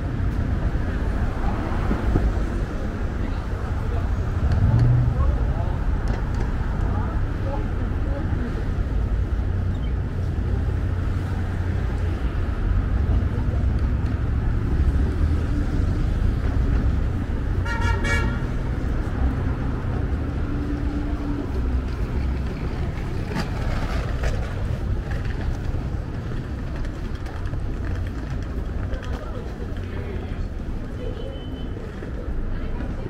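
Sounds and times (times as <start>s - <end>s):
city road traffic: 0.0s - 33.0s
vehicle horn: 17.6s - 18.5s.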